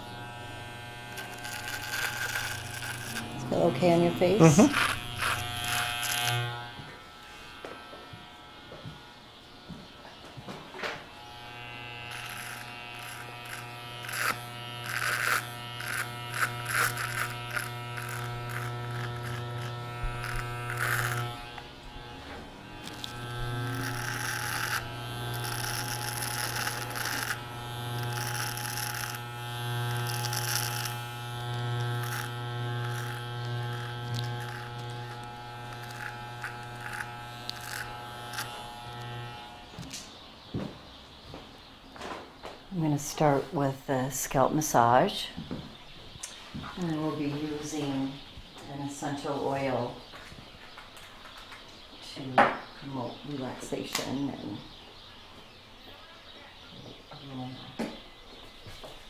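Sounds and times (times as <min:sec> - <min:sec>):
trimmer crackling through whiskers: 0:00.0 - 0:09.2, 0:10.7 - 0:40.3
electric hair trimmer buzzing: 0:00.0 - 0:40.3.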